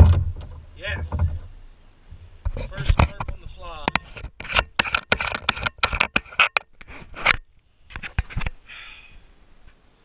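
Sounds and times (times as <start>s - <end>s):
fingers rubbing and knocking on camera: 2.4s - 8.6s
loud clicks and scrapes: 2.5s - 8.6s.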